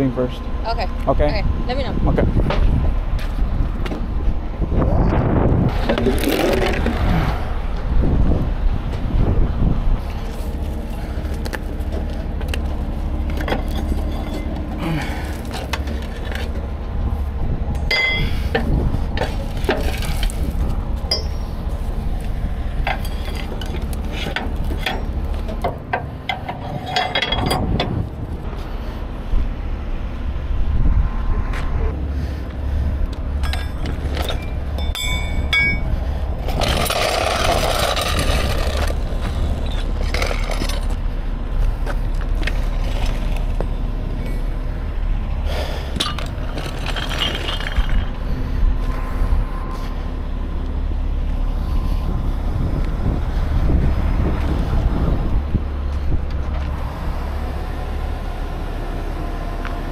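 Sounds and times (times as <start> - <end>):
diesel engine running: 0.0 - 59.9
steel rigging gear clanking: 11.8 - 16.7, 17.7 - 28.4, 33.4 - 41.0, 45.8 - 48.4.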